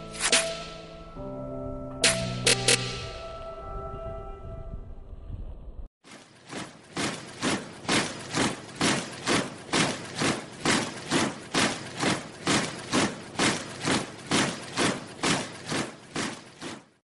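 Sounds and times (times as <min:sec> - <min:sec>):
marching footsteps: 0:06.0 - 0:17.0.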